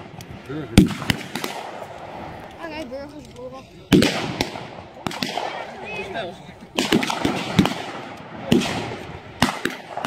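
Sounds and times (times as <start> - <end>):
rifle shots echoing: 0.7 - 2.3, 3.9 - 10.0.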